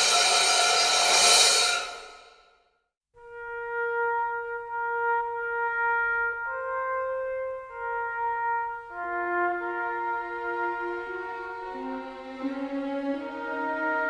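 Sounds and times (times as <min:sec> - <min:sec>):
brass sustained notes: 0:03.2 - 0:14.0.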